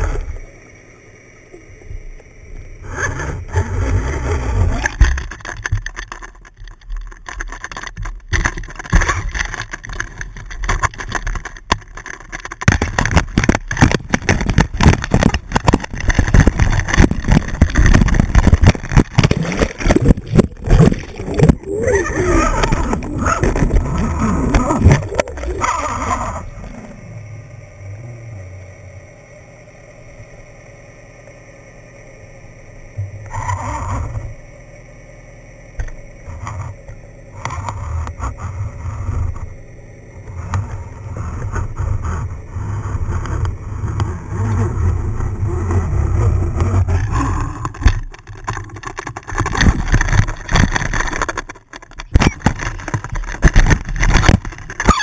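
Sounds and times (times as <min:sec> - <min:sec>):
underwater rumble and water rush: 0:00.0 - 0:55.0
water splashing: 0:11.9 - 0:27.0.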